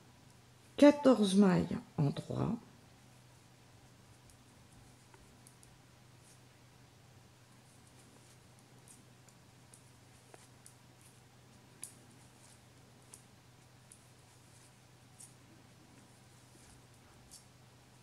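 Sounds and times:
low steady hum: 0:00.0 - 0:18.0
knitting needles clicking: 0:11.8 - 0:14.1.

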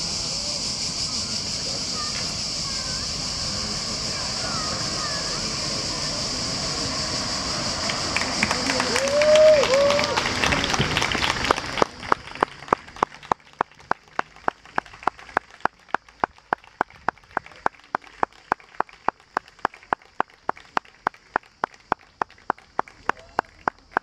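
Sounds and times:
applause: 0:07.9 - 0:24.0.

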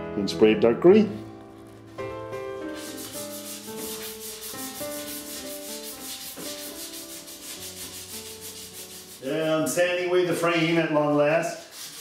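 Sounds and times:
sandpaper rasping on metal frame: 0:02.0 - 0:09.8, 0:10.4 - 0:12.0.

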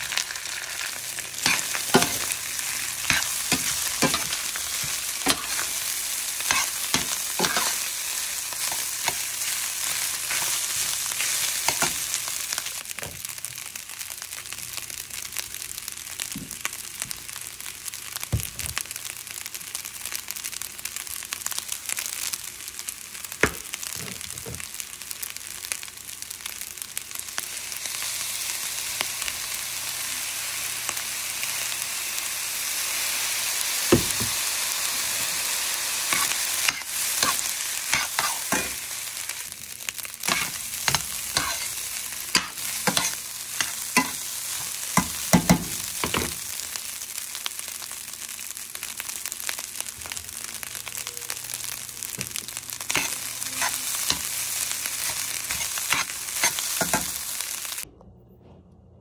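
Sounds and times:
rice sizzling in a pan: 0:00.0 - 0:57.9
metal spoon scraping a pan: 0:01.4 - 0:02.4, 0:03.0 - 0:05.8, 0:06.4 - 0:08.0, 0:08.6 - 0:12.1, 0:36.1 - 0:38.8, 0:40.3 - 0:45.2, 0:52.9 - 0:54.3, 0:55.0 - 0:57.2.

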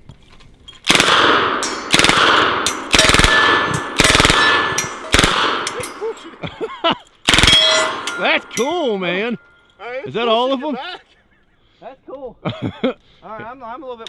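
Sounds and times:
submachine gun bursts: 0:00.9 - 0:05.7, 0:07.3 - 0:07.8.

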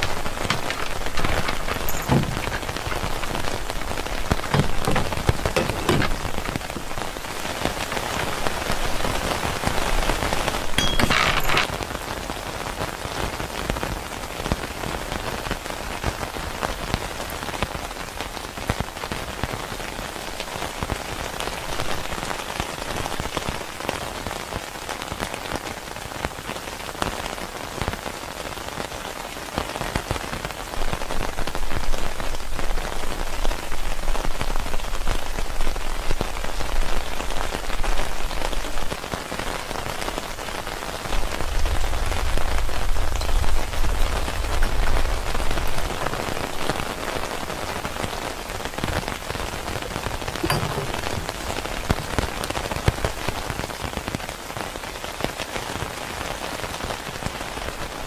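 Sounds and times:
raindrop hits close by: 0:00.0 - 0:10.8
rain falling: 0:00.0 - 0:58.0.

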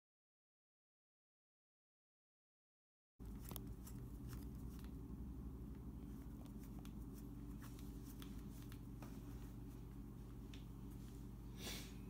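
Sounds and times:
steady low hum: 0:03.2 - 0:12.0.

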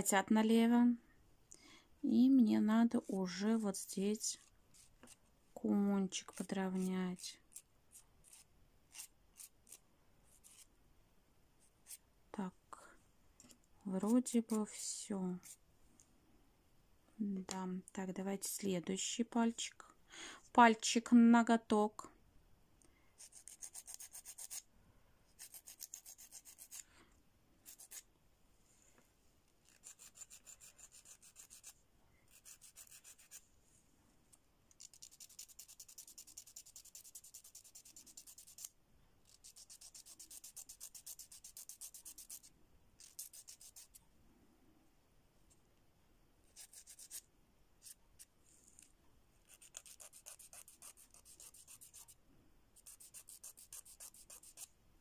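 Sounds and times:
nail file rasping on fingernail: 0:06.1 - 0:10.7, 0:23.2 - 0:24.6, 0:25.3 - 0:26.8, 0:27.6 - 0:28.0, 0:29.6 - 0:33.4, 0:34.7 - 0:44.0, 0:46.5 - 0:52.2, 0:52.8 - 0:54.7.

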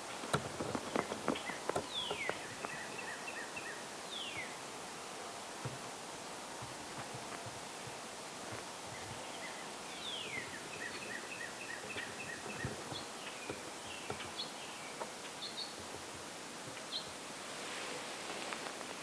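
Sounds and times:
songbird chirping: 0:00.0 - 0:19.0
steady hiss: 0:00.0 - 0:19.0.

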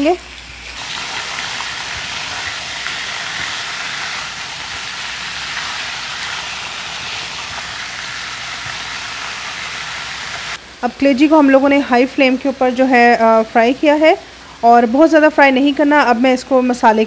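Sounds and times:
liver sizzling in hot oil: 0:00.0 - 0:10.6.

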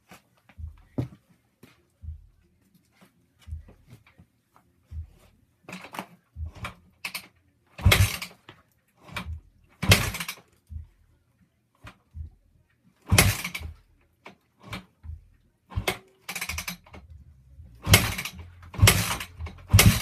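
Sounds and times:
motorcycle kick start thuds: 0:05.7 - 0:08.4, 0:09.0 - 0:10.5, 0:13.0 - 0:13.8, 0:14.6 - 0:17.1, 0:17.8 - 0:20.0.

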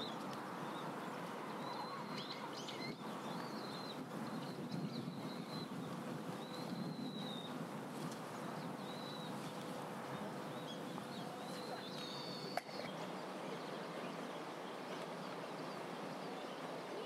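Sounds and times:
steady outdoor hiss: 0:00.0 - 0:17.0
whistled bird calls: 0:01.6 - 0:07.6, 0:08.8 - 0:09.5, 0:10.5 - 0:14.3.

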